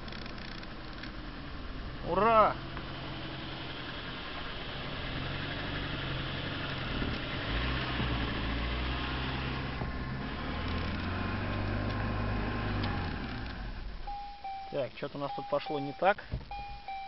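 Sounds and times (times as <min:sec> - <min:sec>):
car engine revving from inside cabin: 0:02.2 - 0:13.7.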